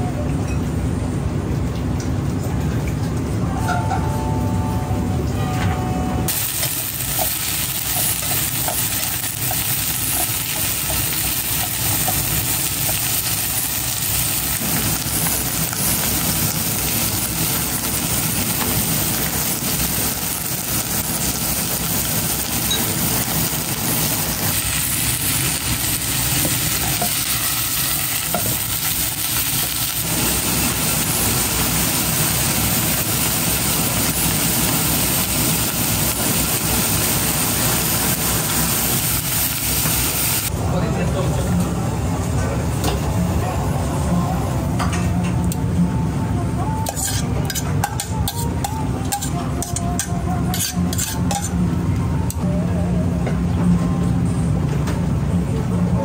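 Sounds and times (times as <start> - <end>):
blowtorch rushing hiss: 6.3 - 40.5
vegetables sizzling in a pan: 6.3 - 40.5, 46.8 - 51.5.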